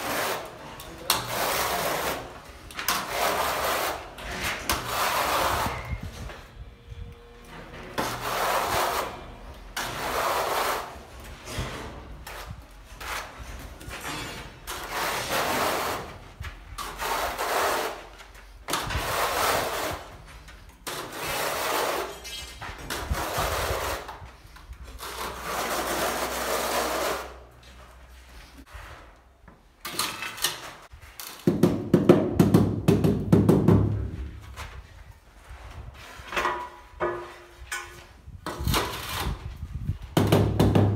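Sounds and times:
trowel scraping adhesive: 0.0s - 6.0s, 8.0s - 9.2s, 9.8s - 11.0s, 14.1s - 16.2s, 16.8s - 18.1s, 20.8s - 24.2s, 24.9s - 27.4s.

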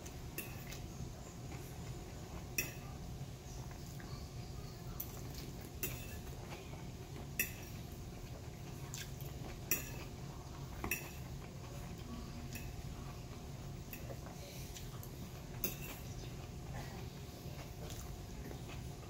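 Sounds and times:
steady low hum: 0.0s - 19.0s
fork clinking on ceramic plate: 5.8s - 6.2s.

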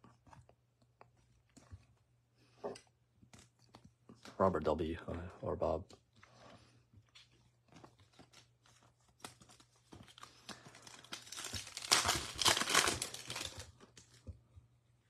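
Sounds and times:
foil wrapper crinkling and tearing: 7.1s - 14.3s.

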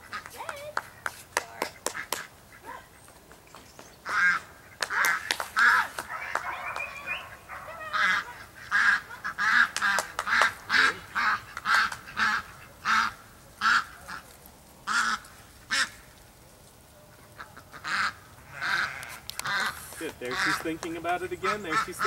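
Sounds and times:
ducks quacking: 0.0s - 0.6s, 4.0s - 16.1s, 17.2s - 22.0s.

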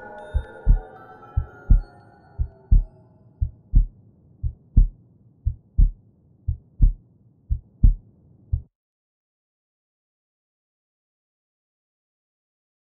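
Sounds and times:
heartbeat thumps: 0.3s - 0.8s, 1.4s - 8.7s.

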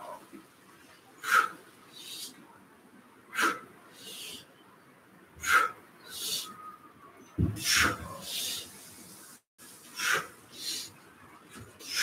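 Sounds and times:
man breathing hard: 1.2s - 2.4s, 3.3s - 4.5s, 5.4s - 6.6s, 9.9s - 11.0s
dull thump: 7.4s - 8.0s.

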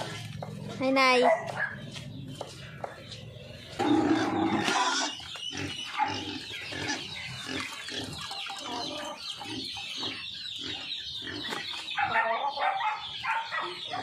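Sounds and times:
chickens clucking: 0.0s - 14.0s
pigs grunting: 3.2s - 13.1s.

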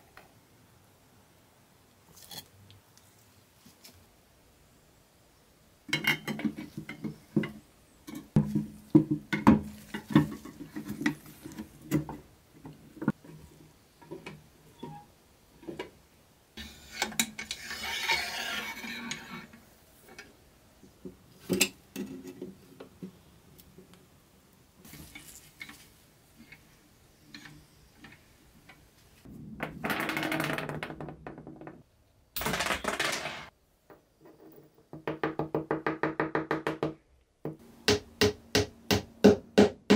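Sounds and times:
metal scraping: 16.6s - 19.6s.

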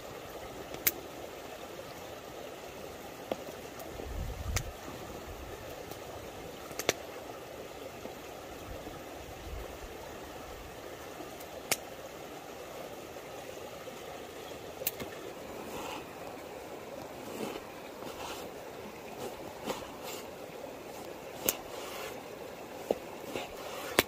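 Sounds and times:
river rushing: 0.0s - 24.0s.

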